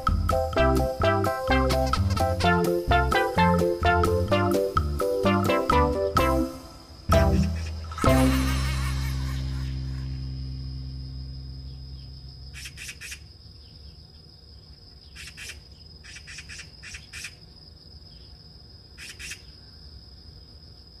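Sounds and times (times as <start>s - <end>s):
background music: 0.0s - 12.4s
insect high-pitched trill: 0.0s - 18.4s
insect chirps: 0.0s - 21.0s.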